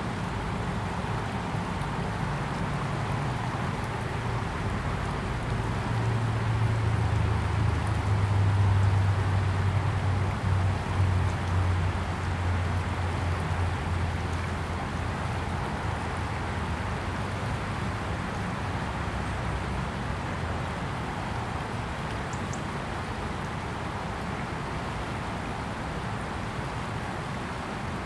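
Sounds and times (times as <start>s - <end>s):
river water rushing: 0.0s - 28.0s.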